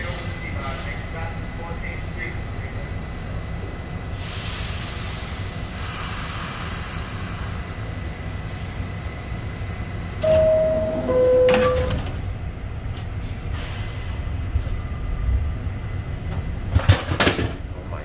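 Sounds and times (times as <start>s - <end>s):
subway car rumbling: 0.0s - 18.0s
two-note door chime: 10.2s - 12.2s.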